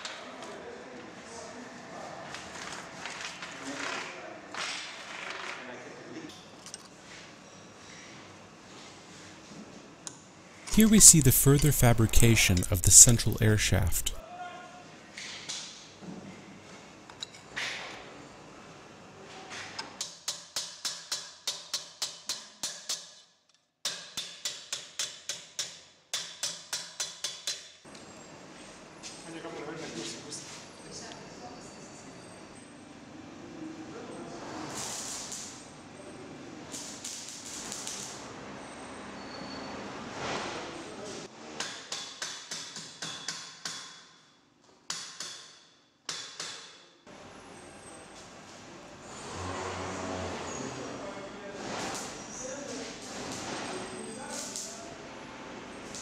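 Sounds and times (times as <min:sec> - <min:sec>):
hammer striking sheet-metal tube: 0:41.6 - 0:44.1, 0:44.9 - 0:46.8.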